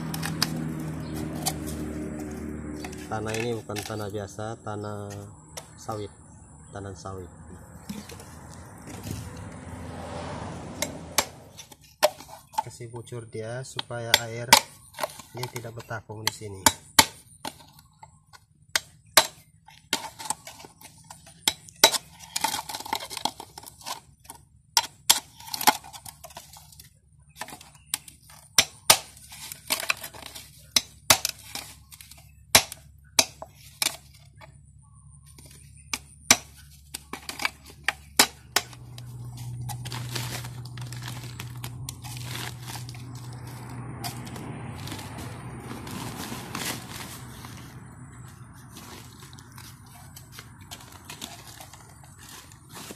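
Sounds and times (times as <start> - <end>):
hoe striking plastic bottles: 13.8 - 17.8, 18.8 - 26.5, 27.4 - 34.2, 35.4 - 43.0
hand rustling in plastic sack: 44.7 - 52.9.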